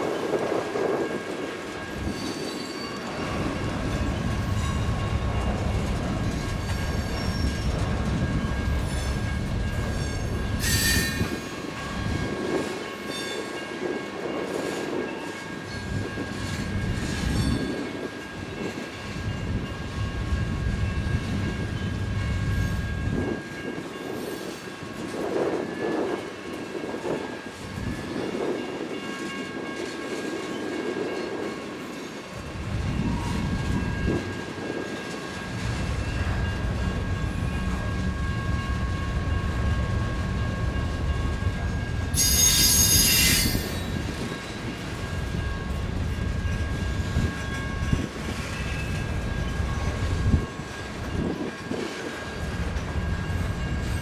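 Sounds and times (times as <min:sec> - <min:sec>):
train wheels rumbling and clattering: 0:00.0 - 0:54.0
thin steady wheel squeal: 0:06.3 - 0:07.8, 0:42.2 - 0:44.7.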